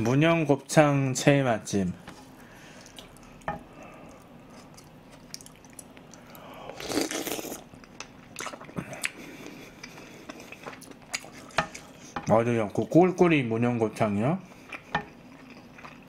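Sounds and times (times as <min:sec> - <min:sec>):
chewing with wet mouth clicks: 0:02.8 - 0:06.4, 0:07.0 - 0:11.9, 0:14.5 - 0:16.0
person slurping soup: 0:06.7 - 0:07.6.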